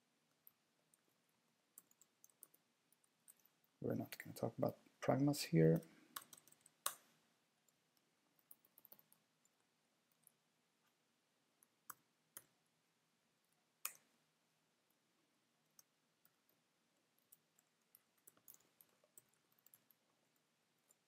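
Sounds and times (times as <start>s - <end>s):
computer keyboard and mouse clicks: 1.8s - 3.6s, 5.8s - 7.1s, 8.4s - 9.2s, 17.2s - 21.0s.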